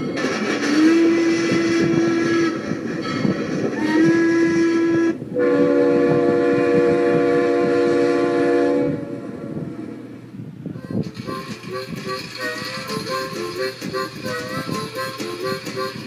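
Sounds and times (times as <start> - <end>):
moving train running noise: 0.0 - 16.0
train horn blowing: 0.4 - 2.8, 3.7 - 10.1.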